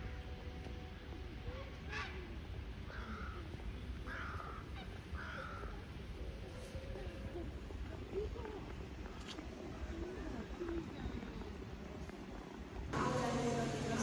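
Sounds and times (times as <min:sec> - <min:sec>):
low background rumble: 0:09.8 - 0:14.0.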